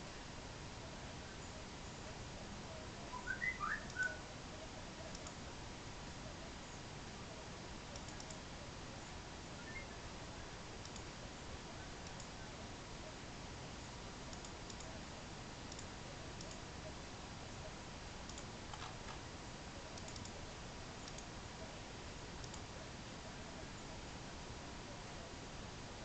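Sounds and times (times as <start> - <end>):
faint high hum: 0.0 - 26.0
room hiss: 0.0 - 26.0
soft clicks: 3.8 - 4.1, 5.0 - 5.4, 7.8 - 8.5, 10.8 - 11.1, 12.0 - 12.4, 14.3 - 15.0, 15.7 - 16.7, 18.2 - 19.3, 19.9 - 20.4, 21.0 - 21.4, 22.4 - 22.7.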